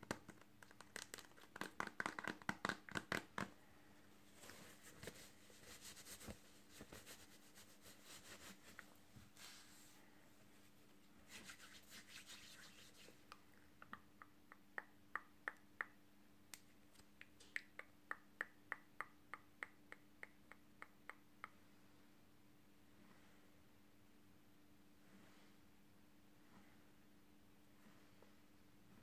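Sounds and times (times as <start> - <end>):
fingers snapping: 0.1 - 3.5
hands rubbing: 4.4 - 10.0, 10.6 - 14.0.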